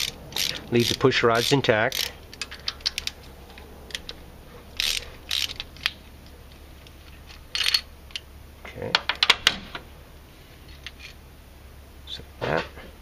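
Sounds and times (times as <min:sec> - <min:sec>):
socket ratchet clicking: 0:00.0 - 0:03.3, 0:04.8 - 0:06.0.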